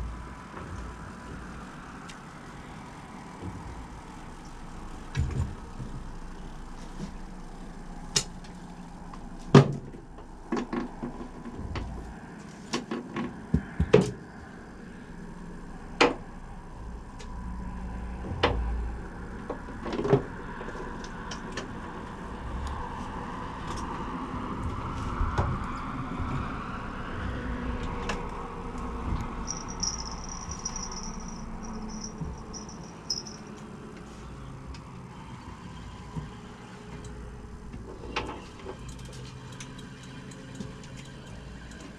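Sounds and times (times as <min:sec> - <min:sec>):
low rumble: 0:28.7 - 0:33.4
fishing gear knocking and clicking: 0:29.4 - 0:33.4.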